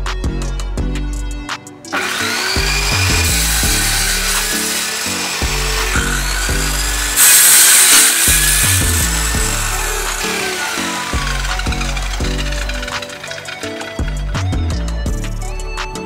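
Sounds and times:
circular saw cutting plywood: 1.9 - 14.6.

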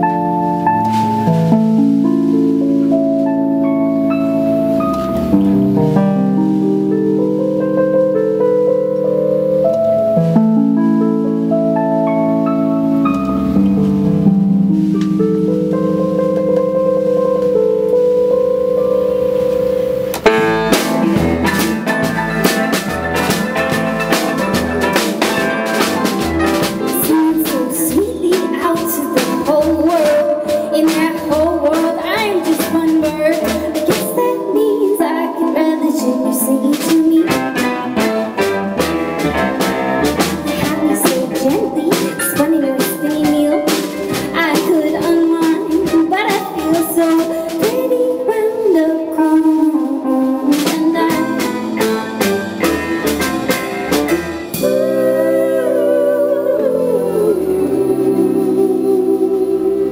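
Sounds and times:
keyboard chord: 0.0 - 46.1, 48.9 - 59.9
live band playing: 0.0 - 59.2
loud drum hit: 20.2 - 27.2, 37.3 - 42.6.

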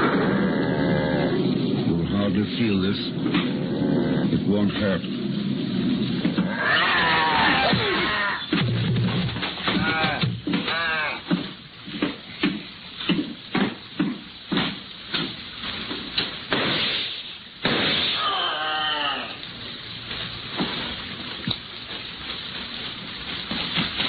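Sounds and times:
heavy thuds and knocks: 8.5 - 15.4
crash: 16.5 - 18.5
person crying out in anguish: 18.2 - 19.4.

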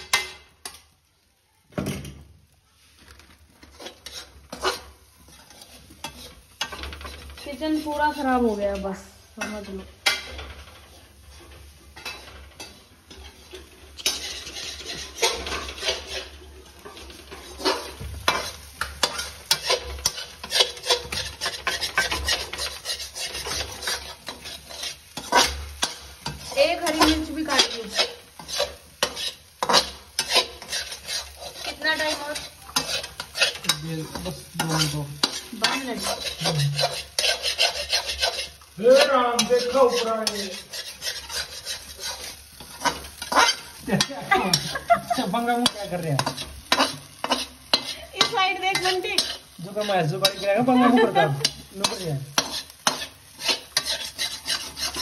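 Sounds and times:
metal spatula scraping pan: 0.0 - 0.9, 3.6 - 55.0
eggs sizzling: 0.0 - 55.0.

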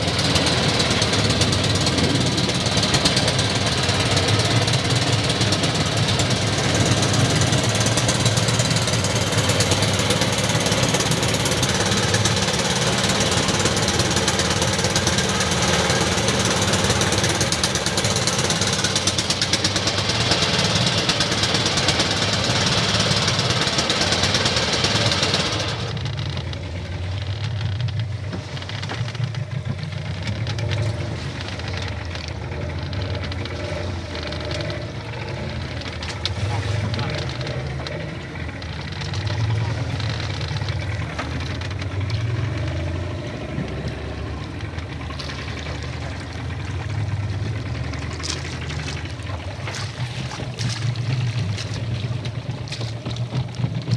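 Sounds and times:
boat engine knocking: 0.0 - 53.9
low thrum: 39.5 - 53.9.

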